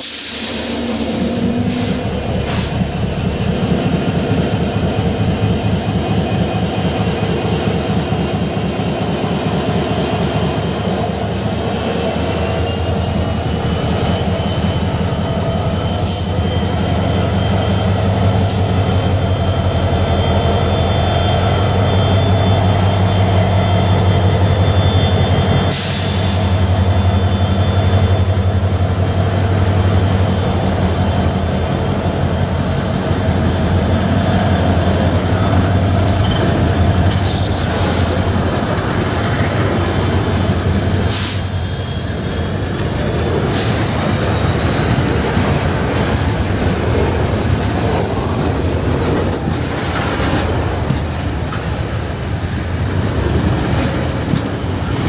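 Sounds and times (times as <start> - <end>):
brief hisses: 0.0 - 2.8
locomotive engines throbbing: 0.2 - 55.0.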